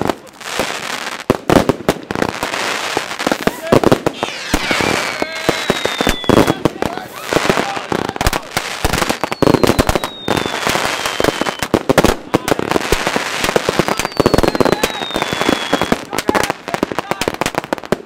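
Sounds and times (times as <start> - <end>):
firework bangs and crackling: 0.0 - 18.0
firework whistle falling in pitch: 4.1 - 6.6, 9.2 - 11.7, 13.9 - 16.0.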